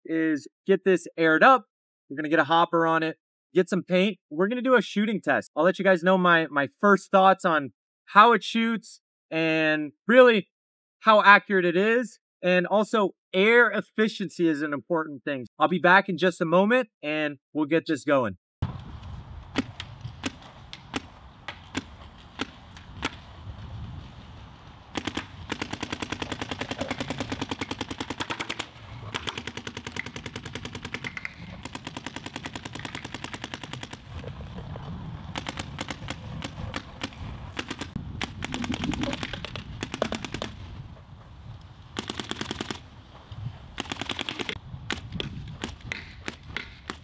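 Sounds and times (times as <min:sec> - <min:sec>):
paintball marker firing: 0:19.5 - 0:23.3, 0:24.9 - 0:34.2, 0:35.4 - 0:40.7, 0:42.0 - 0:42.9, 0:43.8 - 0:47.0.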